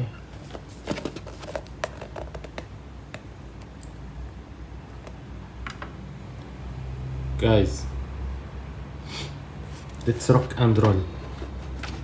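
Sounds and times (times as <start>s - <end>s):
cardboard box taps and clicks: 0.9s - 3.3s.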